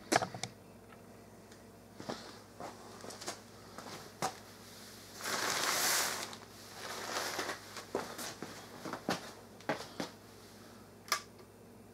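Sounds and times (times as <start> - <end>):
thin fabric rustling: 5.1 - 9.4.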